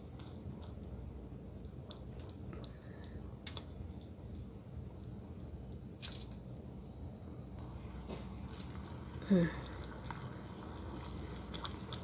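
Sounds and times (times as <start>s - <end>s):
sauce simmering in a pot: 7.6s - 12.0s.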